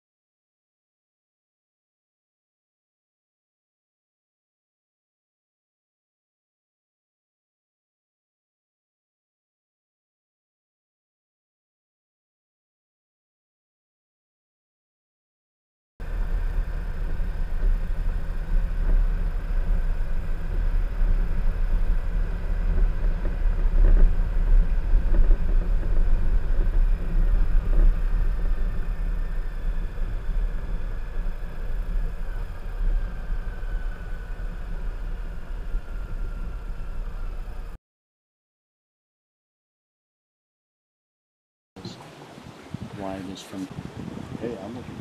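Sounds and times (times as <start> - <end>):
motorcycle engine rumble: 16.0 - 37.8.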